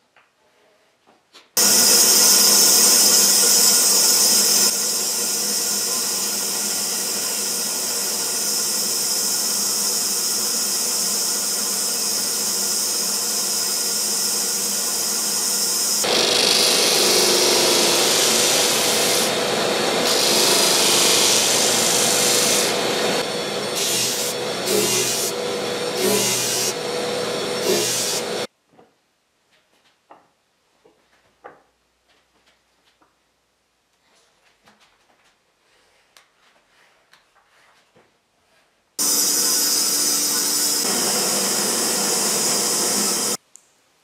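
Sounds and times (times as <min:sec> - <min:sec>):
band saw cutting wood: 0:01.6 - 0:28.5, 0:39.0 - 0:43.4
disc sander grinding wood: 0:01.6 - 0:28.5, 0:39.0 - 0:43.4.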